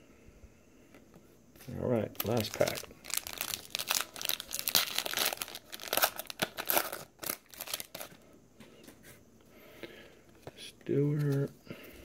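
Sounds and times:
foil wrapper crinkling and tearing: 0:01.7 - 0:08.2.

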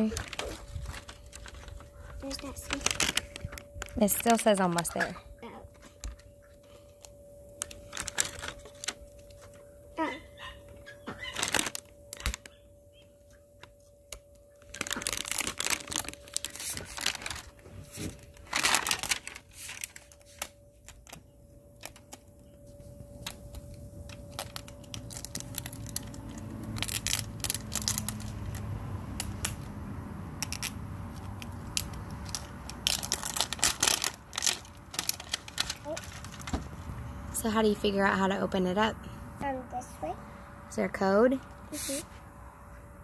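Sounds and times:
wrapping tearing and crinkling: 0:00.0 - 0:05.0, 0:07.0 - 0:09.6, 0:11.2 - 0:12.6, 0:14.2 - 0:29.6, 0:30.4 - 0:36.7.

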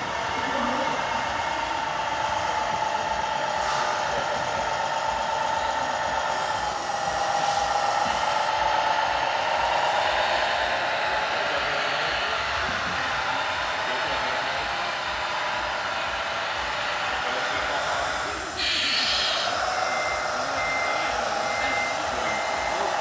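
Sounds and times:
electric motors and gears whining: 0:00.0 - 0:23.0
high hiss: 0:17.2 - 0:23.0.

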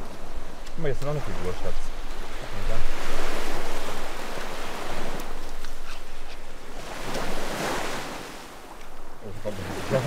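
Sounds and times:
waves washing onto beach: 0:00.0 - 0:10.0.

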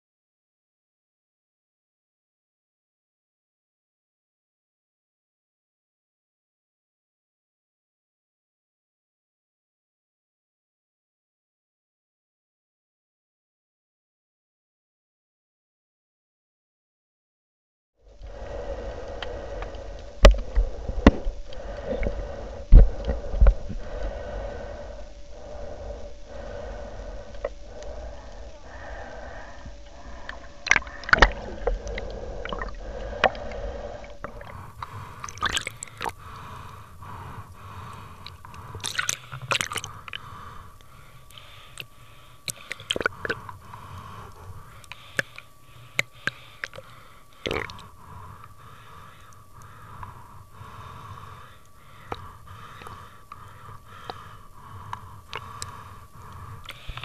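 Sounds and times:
faint steady drone: 0:18.0 - 0:57.0
gurgling water: 0:18.1 - 0:41.8, 0:42.4 - 0:48.0
underwater clicks and knocks: 0:30.6 - 0:33.6.

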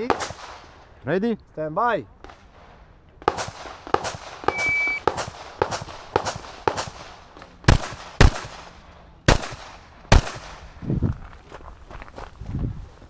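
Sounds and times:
pistol shots: 0:03.2 - 0:10.6
shot timer beep: 0:04.5 - 0:05.1.

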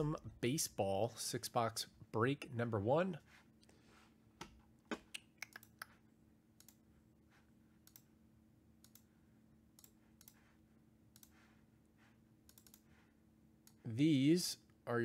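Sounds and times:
keyboard and mouse clicks: 0:04.9 - 0:06.0, 0:06.6 - 0:06.8, 0:07.8 - 0:08.1, 0:08.8 - 0:09.1, 0:09.8 - 0:10.5, 0:11.1 - 0:11.5, 0:12.5 - 0:12.9.

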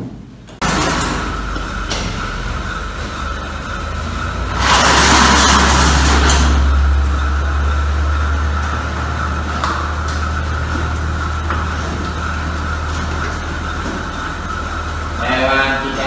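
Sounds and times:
machinery hum and whine: 0:00.0 - 0:16.0.

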